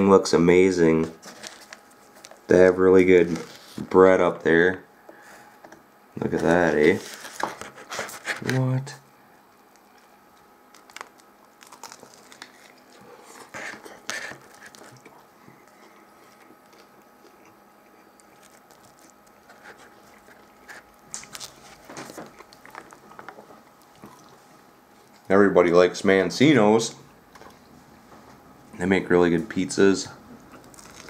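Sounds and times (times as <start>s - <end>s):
crunching bread while chewing: 9.5s - 25.2s, 30.4s - 31.0s.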